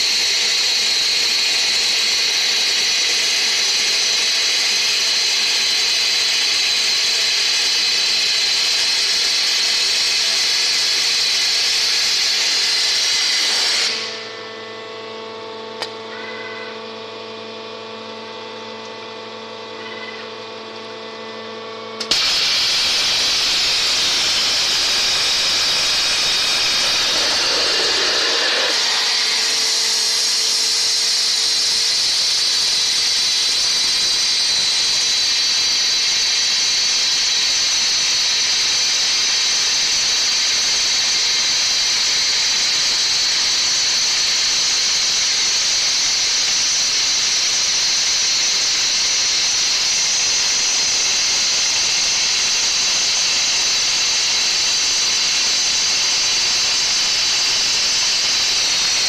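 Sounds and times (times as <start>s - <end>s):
machine hum with fixed tones: 0.0s - 59.0s
high-pitched water jet hiss: 22.1s - 36.1s, 52.3s - 59.0s.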